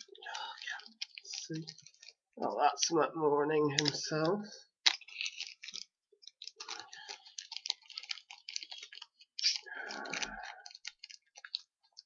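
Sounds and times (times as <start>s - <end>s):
packaging rustle: 0.0s - 2.4s, 4.7s - 12.0s
packaging clicks and crackles: 0.0s - 3.0s, 3.7s - 12.0s.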